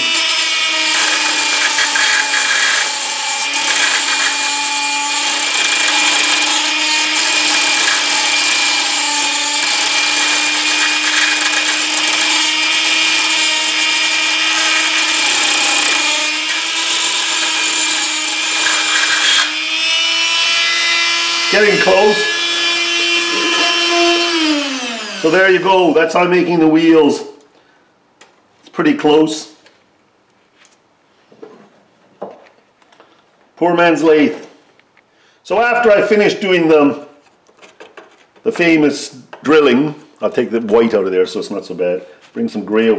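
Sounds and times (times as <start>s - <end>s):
rotary tool motor running: 0.0s - 25.4s
file scraping metal: 0.0s - 25.6s.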